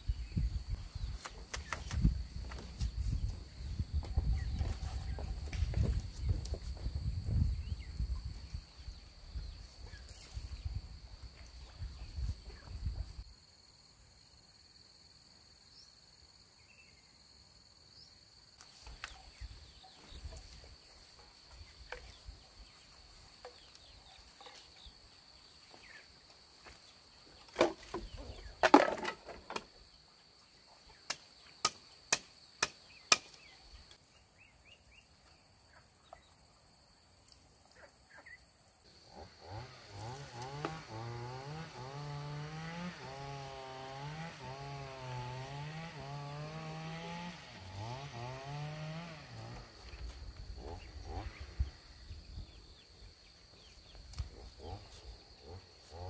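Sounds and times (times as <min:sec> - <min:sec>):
insects buzzing: 0:00.0 - 0:56.0
chainsaw running: 0:38.9 - 0:51.6.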